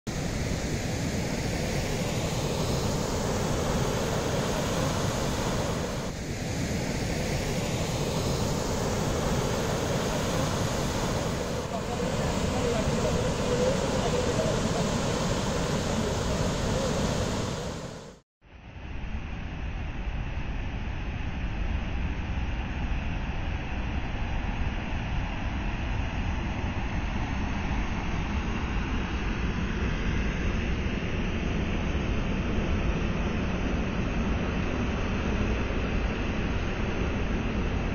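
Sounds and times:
waterfall roaring: 1.9 - 6.1, 7.2 - 18.2.

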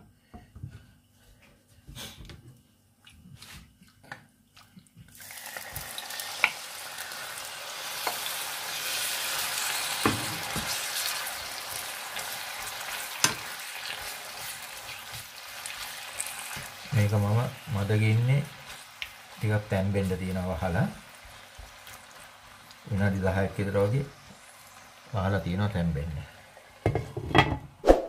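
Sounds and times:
chicken sizzling in oil: 5.2 - 27.0.

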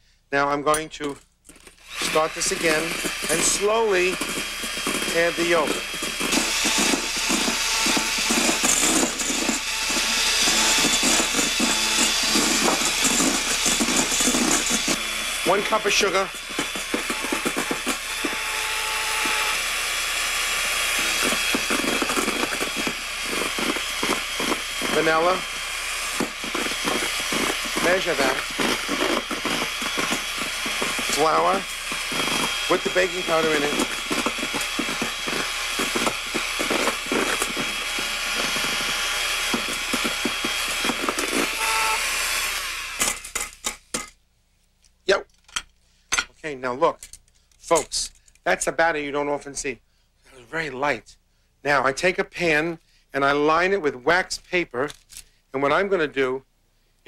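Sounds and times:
electric mixer whirring: 1.8 - 43.5.

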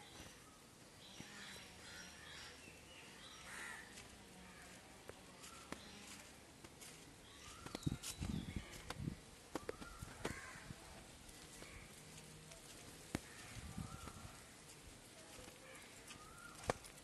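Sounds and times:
crows cawing: 3.5 - 4.0, 9.9 - 10.8, 13.2 - 13.6.

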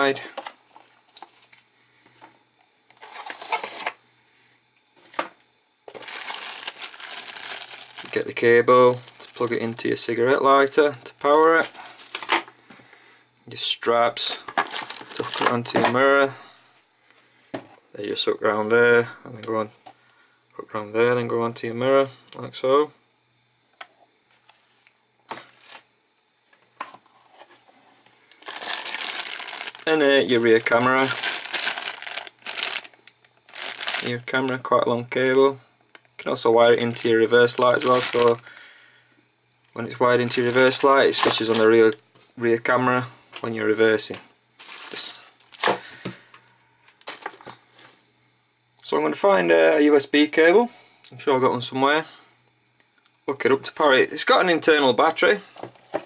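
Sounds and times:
plastic bag crinkling: 2.9 - 4.0, 5.9 - 12.5, 14.5 - 15.8, 25.4 - 25.8, 28.2 - 35.6, 36.6 - 38.5, 39.8 - 42.0, 44.6 - 46.0, 46.9 - 47.6.

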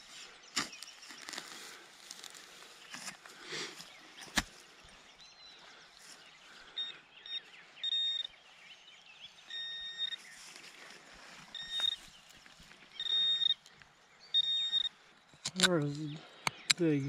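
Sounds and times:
faint bird chirps: 0.0 - 17.0
metal detector beeps: 6.8 - 8.4, 9.4 - 10.3, 11.5 - 12.1, 13.0 - 13.6, 14.3 - 15.0.

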